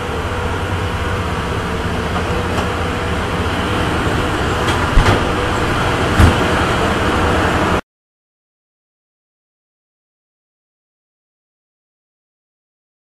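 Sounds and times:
train rumble and rattle: 0:00.0 - 0:07.8
sharp knocks: 0:06.2 - 0:06.5.

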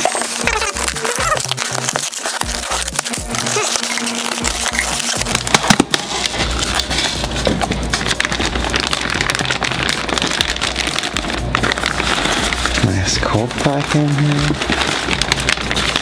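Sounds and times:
styrofoam cooler snapping open: 0:00.0 - 0:12.0
plastic bag crinkling: 0:00.0 - 0:16.0.

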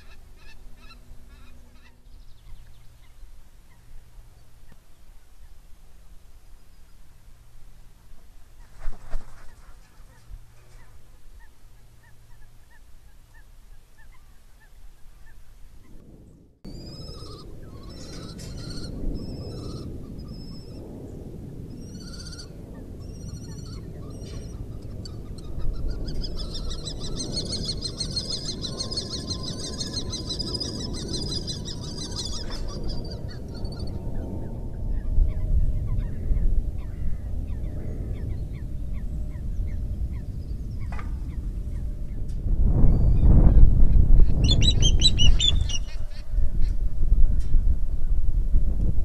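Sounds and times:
birds calling: 0:00.0 - 0:05.6, 0:08.6 - 0:16.0, 0:16.7 - 0:42.3, 0:44.2 - 0:46.3
wind rumbling on microphone: 0:00.0 - 0:49.0
rapid high chattering bird calls: 0:16.7 - 0:20.8, 0:21.8 - 0:34.0, 0:44.4 - 0:46.2.

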